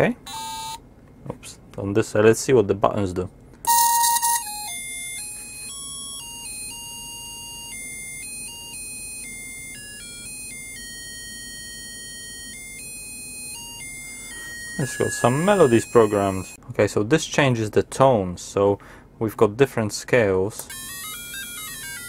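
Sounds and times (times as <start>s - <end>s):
electronic beeping melody: 3.7s - 16.6s, 20.7s - 22.0s.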